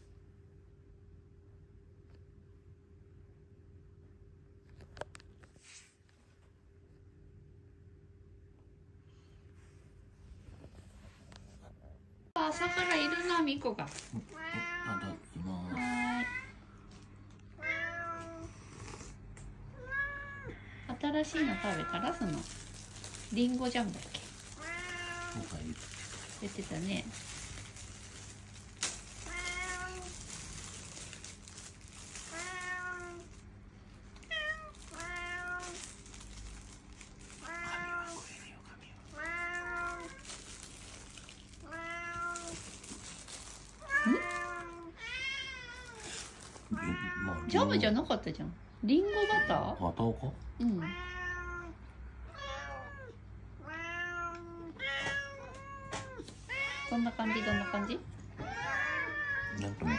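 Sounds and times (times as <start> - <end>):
cat meowing: 14.3 - 16.5, 17.6 - 18.6, 21.2 - 22.6, 24.4 - 25.8, 29.1 - 30.3, 32.2 - 33.4, 34.2 - 36.0, 37.4 - 38.3, 39.1 - 40.4, 41.6 - 42.8, 43.8 - 47.8, 50.7 - 59.9.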